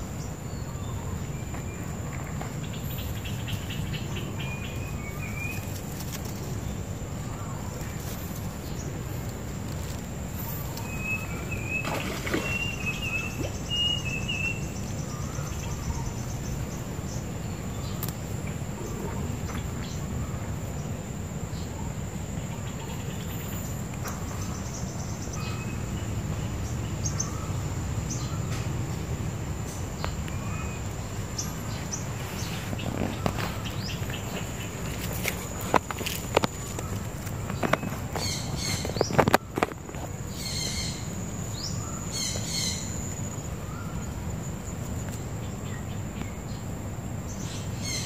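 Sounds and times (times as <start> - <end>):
high insect whine: 0.0 - 48.0
faint rustles and clicks: 5.0 - 11.1, 31.7 - 40.4
bird chirps: 10.4 - 17.2.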